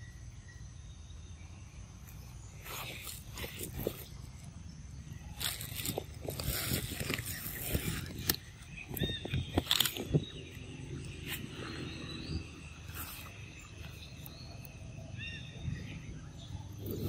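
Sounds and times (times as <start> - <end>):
monkeys chewing fruit: 5.2 - 12.2.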